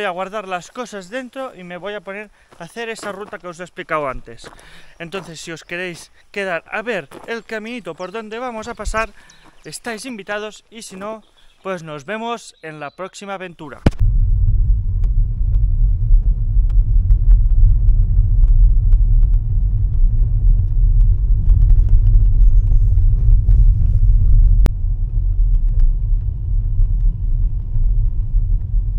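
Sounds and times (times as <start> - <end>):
car engine and tyres rumbling: 14.0 - 28.9.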